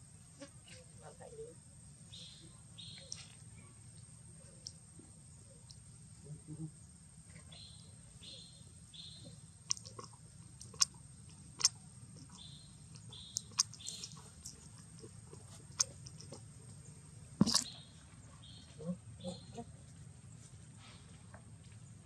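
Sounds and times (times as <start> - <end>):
sharp clicks: 11.6 - 14.6
baby monkey squeaking: 12.3 - 14.6.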